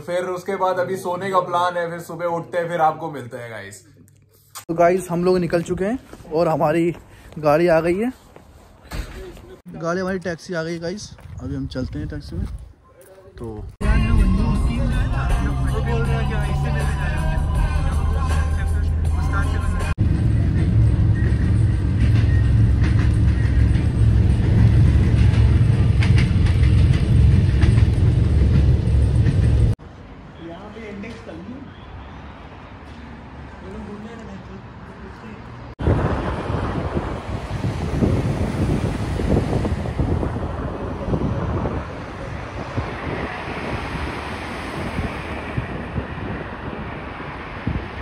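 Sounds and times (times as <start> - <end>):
wind buffeting microphone: 10.8 - 12.8, 35.8 - 48.0
vehicle rumble from inside: 13.8 - 29.8.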